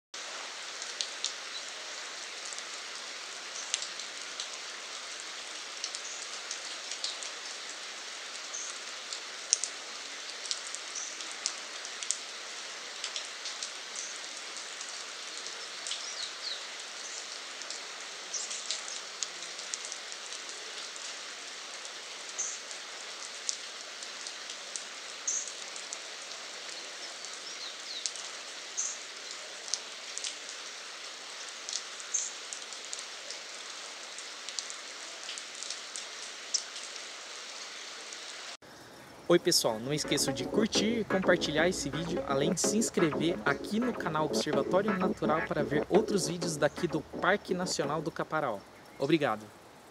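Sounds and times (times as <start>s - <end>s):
rain falling on foliage: 0.2s - 42.4s, 43.3s - 49.9s.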